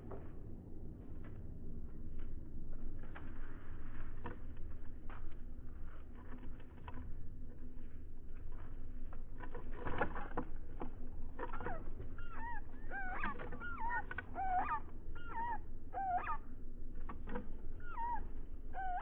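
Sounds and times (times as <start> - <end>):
short wavering animal calls: 11.4 - 16.6, 17.2 - 19.0.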